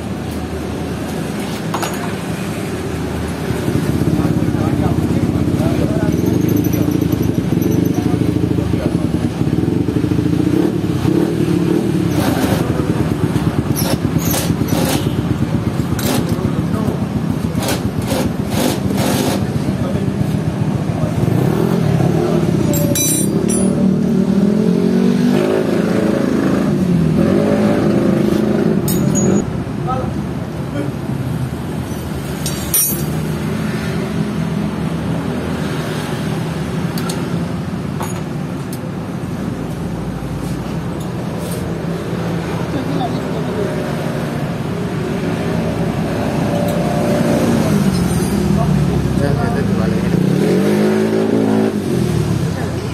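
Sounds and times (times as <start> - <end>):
motorcycle engine running: 3.3 - 24.4
metal wrench clinks: 22.7 - 23.9, 28.9 - 29.4, 31.9 - 33.3, 47.9 - 48.5
sharp metal clank: 22.7 - 24.0, 28.8 - 29.4, 32.4 - 33.3.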